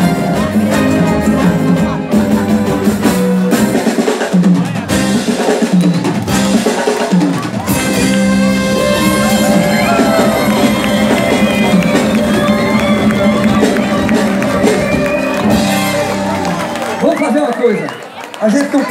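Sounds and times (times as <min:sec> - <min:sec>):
drum kit: 0:00.0 - 0:17.1
live band playing: 0:00.0 - 0:18.9
held melody line: 0:07.7 - 0:17.2.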